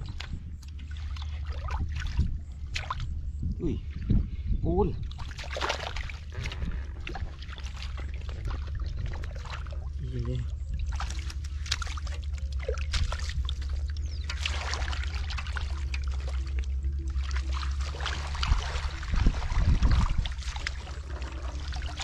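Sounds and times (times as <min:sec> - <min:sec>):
hands splashing in muddy water: 0:00.0 - 0:03.2, 0:05.0 - 0:22.0
steady low rumble: 0:00.0 - 0:22.0.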